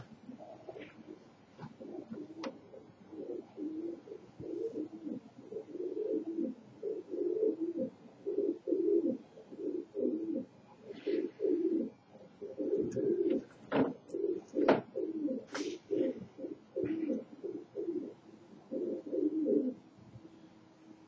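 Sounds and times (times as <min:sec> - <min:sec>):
pigeons cooing: 0:00.0 - 0:19.9.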